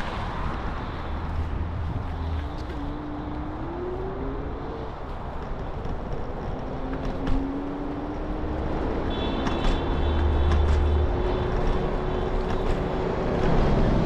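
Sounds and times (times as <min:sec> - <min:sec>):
wind and road rumble: 0:00.0 - 0:14.0
scooter hum rising in pitch: 0:02.1 - 0:09.1.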